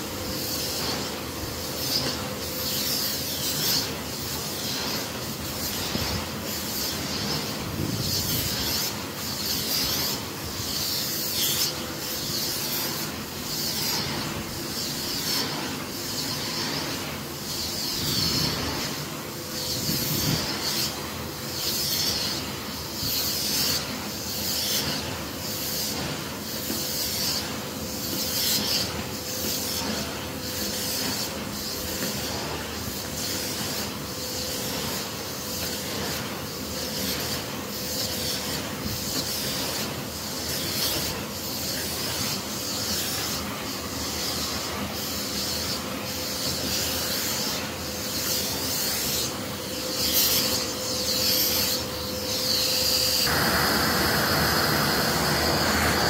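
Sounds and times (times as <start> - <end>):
vacuum cleaner whining: 43.3 - 56.0.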